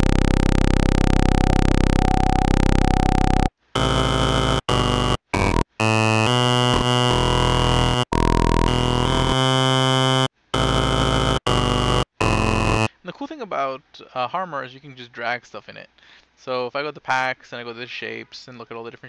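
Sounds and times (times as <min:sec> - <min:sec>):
synthesizer playing low held notes: 0:00.0 - 0:12.9.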